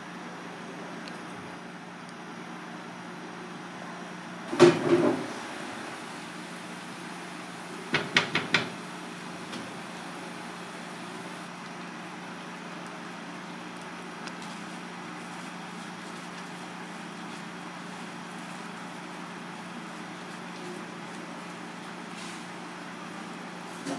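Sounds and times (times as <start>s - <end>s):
sauce bubbling hiss: 5.2s - 23.0s.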